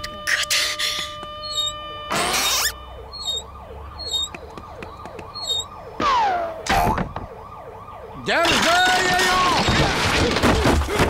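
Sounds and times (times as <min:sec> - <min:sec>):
cartoon siren-like wail: 0:00.1 - 0:09.8
falling whistle: 0:00.3 - 0:04.4, 0:05.3 - 0:05.7.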